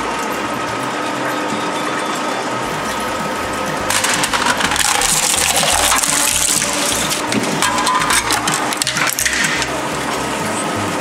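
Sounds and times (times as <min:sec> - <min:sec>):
shredder crunching plastic: 0:03.9 - 0:09.8.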